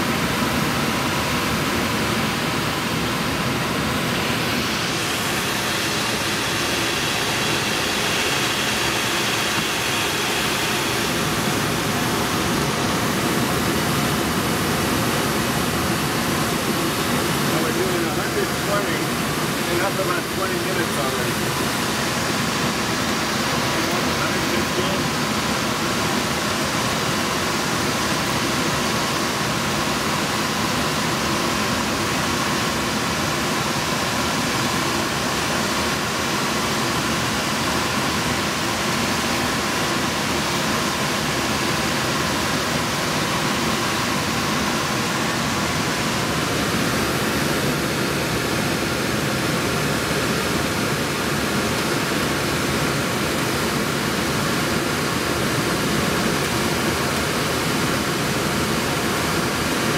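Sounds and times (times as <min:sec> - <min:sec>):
airflow rushing over glider: 0:00.2 - 0:25.7.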